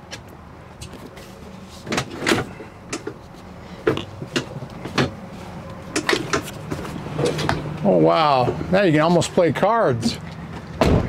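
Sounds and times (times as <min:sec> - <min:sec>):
seat mechanism clunks and clicks: 0:01.8 - 0:03.2, 0:03.8 - 0:05.2, 0:05.9 - 0:07.8.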